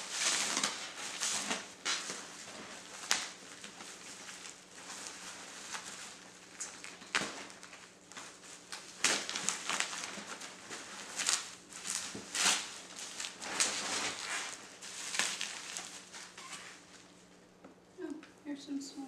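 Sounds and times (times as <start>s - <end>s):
bubble wrap rustling and crinkling: 0.0s - 17.4s.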